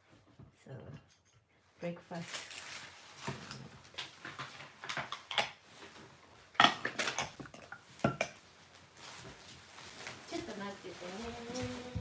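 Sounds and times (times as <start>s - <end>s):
dishes and cutlery clinking: 4.4s - 5.6s, 6.6s - 8.4s.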